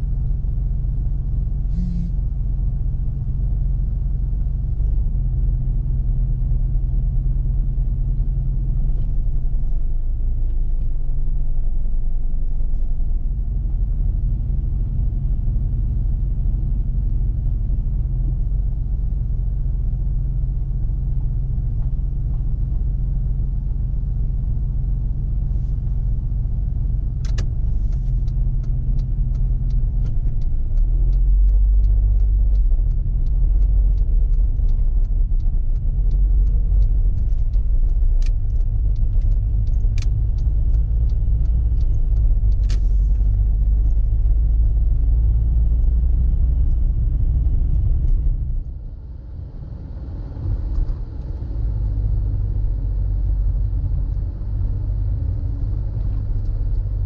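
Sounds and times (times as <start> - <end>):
car engine and road rumble: 0.0 - 57.0
turn signal ticking: 19.9 - 48.8, 50.4 - 57.0.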